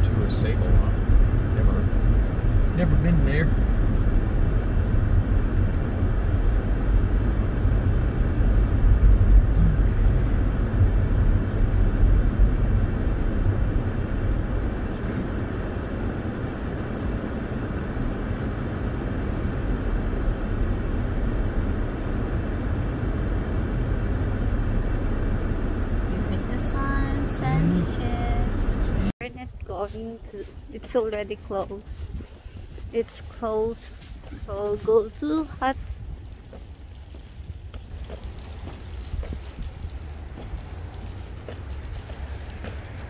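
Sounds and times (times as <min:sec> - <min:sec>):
car engine and tyre noise: 0:00.0 - 0:43.0.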